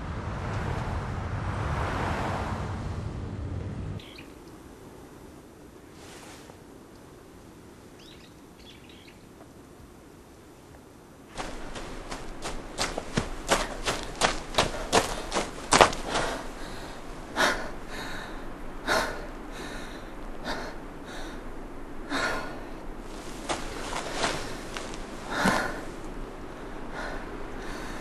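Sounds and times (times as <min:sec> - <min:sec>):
person breathing hard: 0:11.4 - 0:28.0.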